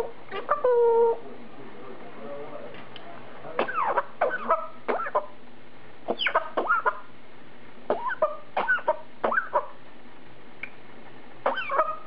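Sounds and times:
parrot mimicking coughs: 3.6 - 5.2, 7.9 - 9.5.

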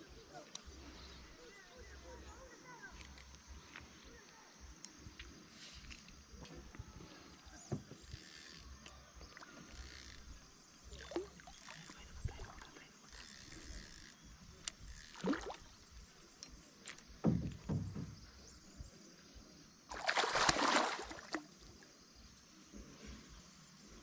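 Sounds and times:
water sloshing around a kayak: 5.5 - 18.9, 19.9 - 22.7
fish splashing: 19.9 - 21.6.

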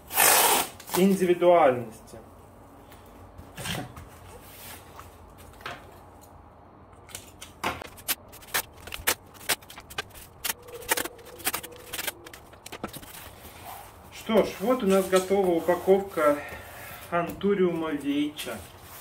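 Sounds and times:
plastic film crinkling: 7.8 - 13.6.

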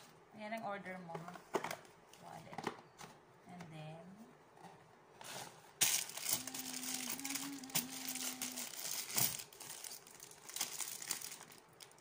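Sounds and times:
plastic packaging crinkling: 5.8 - 12.0.

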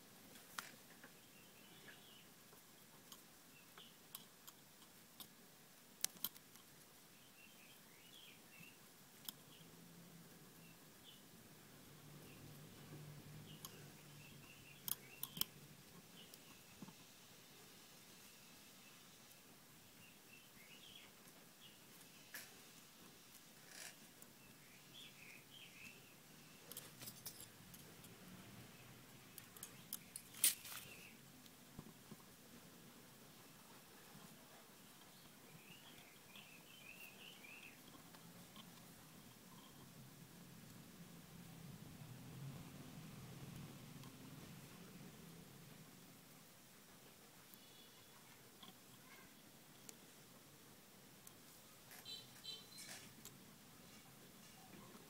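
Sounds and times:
small sharp clicks and ticks: 1.8 - 6.8, 8.5 - 9.6, 12.2 - 17.1, 22.0 - 32.3, 42.3 - 45.4
faint high chirps: 12.0 - 17.0, 24.3 - 27.5, 34.8 - 37.9, 47.5 - 49.8, 51.9 - 53.2.

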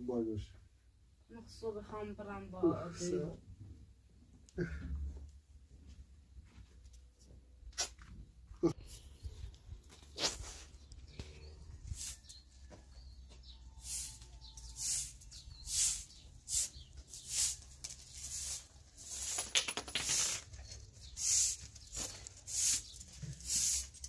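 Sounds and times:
broom sweeping concrete: 10.1 - 10.8, 11.8 - 12.4, 13.7 - 24.0.

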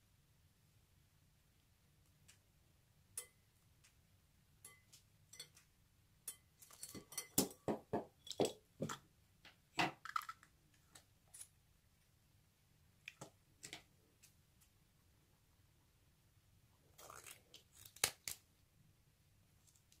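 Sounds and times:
clinks on glass bowl: 4.6 - 5.6, 6.3 - 8.6.

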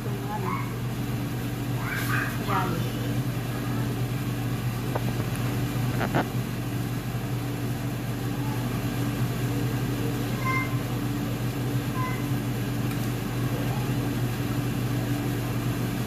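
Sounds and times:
constant whir: 0.0 - 16.0
motor hum: 0.0 - 16.0.

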